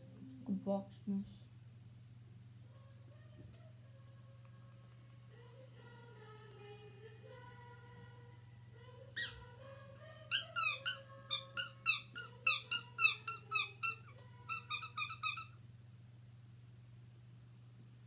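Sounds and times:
guinea pig squeaking: 9.2s - 9.5s, 10.3s - 15.6s.

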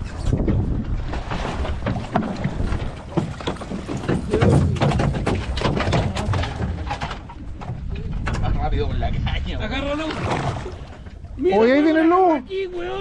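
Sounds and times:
water splashing against hull: 0.0s - 13.0s
wind buffeting microphone: 0.0s - 13.0s
boat motor running: 1.7s - 8.5s.

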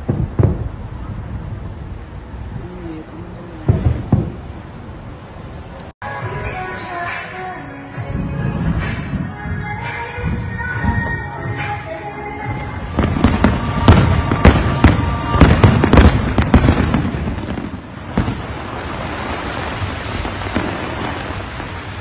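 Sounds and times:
fireworks bursting: 0.0s - 5.9s, 8.0s - 22.0s
steady rushing noise: 7.9s - 22.0s.

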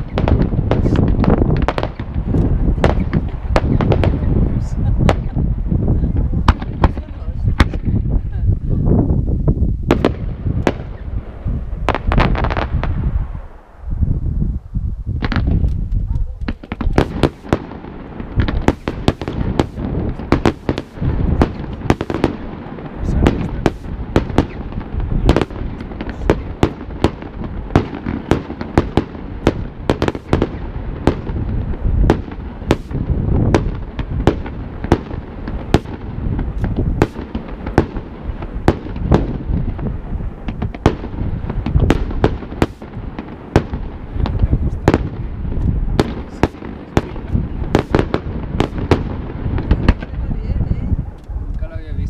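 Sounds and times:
fireworks bangs and pops: 0.0s - 8.4s, 9.8s - 13.6s, 15.1s - 52.0s
low rumble: 0.0s - 17.6s.

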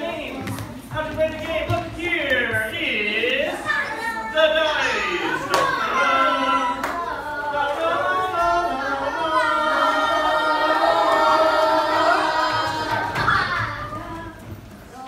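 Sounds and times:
children chanting together: 4.8s - 14.4s.

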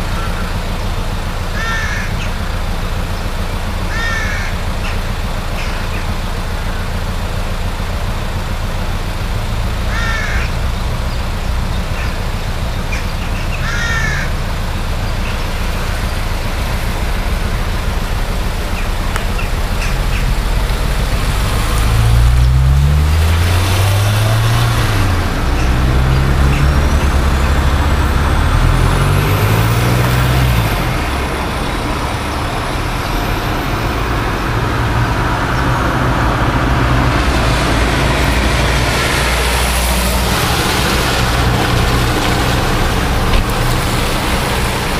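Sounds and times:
bird calling: 0.0s - 7.2s, 9.6s - 36.3s
car engine running: 0.0s - 44.9s
rushing water: 0.0s - 44.9s.

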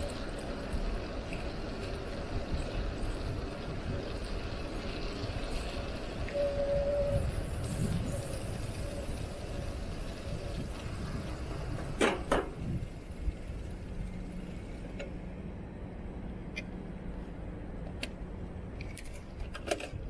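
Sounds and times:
bicycle tyres rumbling: 0.0s - 15.8s.

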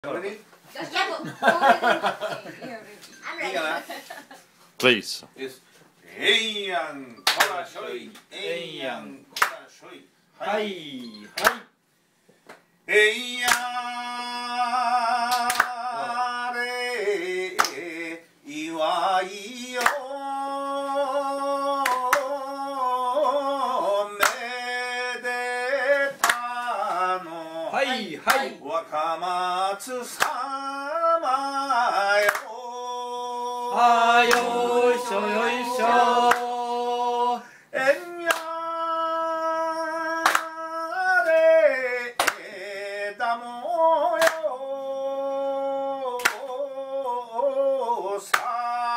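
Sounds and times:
group clapping: 7.2s - 7.6s, 9.3s - 9.6s, 11.4s - 11.7s, 13.4s - 13.9s, 15.2s - 15.9s, 17.5s - 17.9s, 19.7s - 20.1s, 21.8s - 22.4s, 24.2s - 24.5s, 26.0s - 27.1s, 28.2s - 28.5s, 30.1s - 30.4s, 32.1s - 32.5s, 33.8s - 36.8s, 38.2s - 38.6s, 40.1s - 41.5s, 42.1s - 42.5s, 44.1s - 44.5s, 46.1s - 46.6s, 48.2s - 48.6s
person singing unaccompanied: 12.9s - 48.9s.

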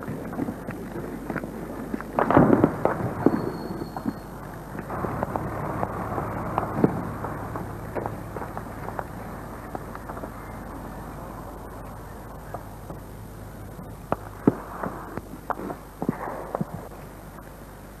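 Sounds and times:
tape hiss and hum: 0.0s - 18.0s
gunfire cracks: 2.2s - 13.0s, 14.1s - 17.2s.

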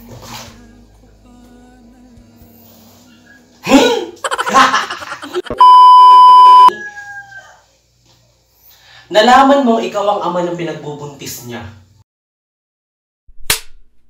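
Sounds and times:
test pattern beep: 5.5s - 6.7s
rooster crowing: 6.4s - 7.8s.

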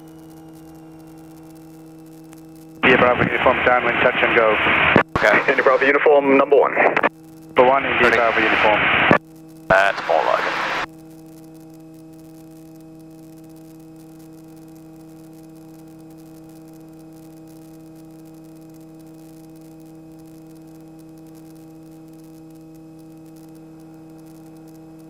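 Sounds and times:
aircraft engine drone: 0.0s - 2.2s, 2.8s - 10.9s.

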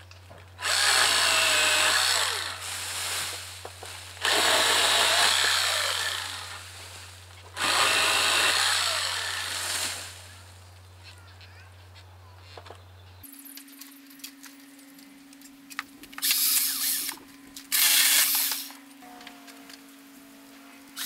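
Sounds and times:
electric pole saw cutting: 0.6s - 2.8s, 4.2s - 6.7s, 7.5s - 10.3s, 16.2s - 19.2s.

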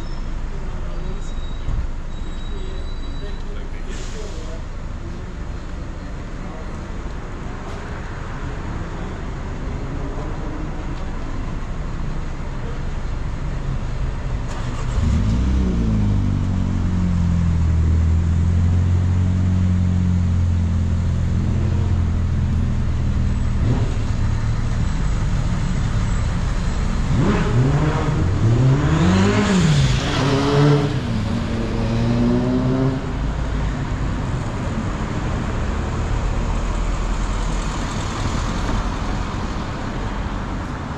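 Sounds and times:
vehicle engine droning: 0.0s - 40.9s
engine revving as vehicle accelerates: 14.4s - 40.9s.

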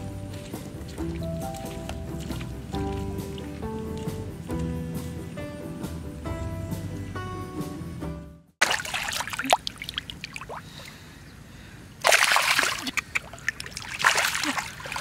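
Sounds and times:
water dribbling and trickling: 0.0s - 5.4s, 8.6s - 11.0s, 12.0s - 15.0s
water splashing in pond: 0.0s - 5.7s, 8.6s - 11.0s, 12.0s - 15.0s.

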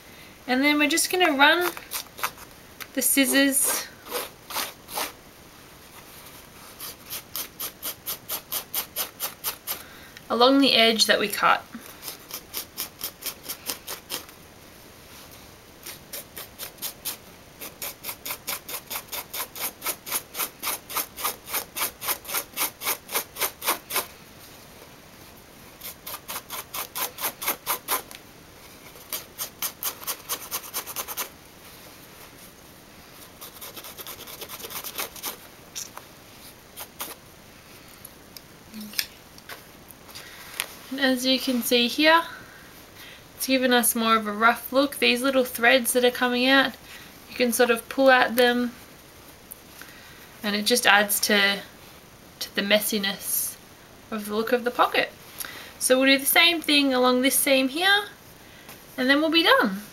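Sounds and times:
scissor blade scraping denim: 1.6s - 2.4s, 4.1s - 5.2s, 6.8s - 9.8s, 12.0s - 14.3s, 15.8s - 24.1s, 25.8s - 28.2s, 28.8s - 31.3s, 33.4s - 35.4s, 36.8s - 37.2s.

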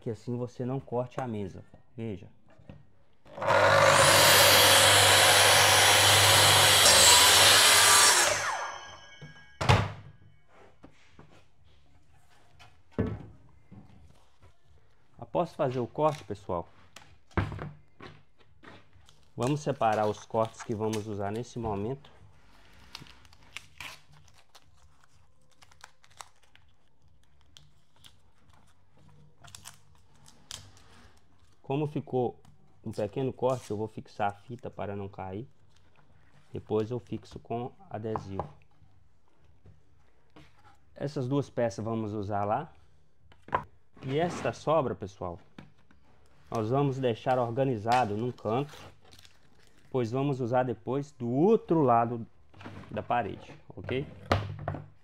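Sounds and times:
circular saw cutting wood: 3.3s - 9.2s.

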